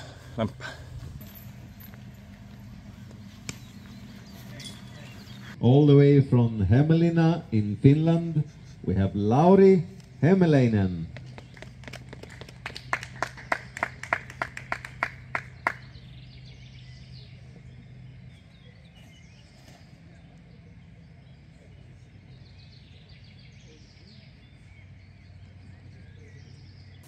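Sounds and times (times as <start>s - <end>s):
faint birds chirping: 0.0s - 27.0s
low steady hum: 0.0s - 27.0s
crowd clapping: 11.1s - 15.9s.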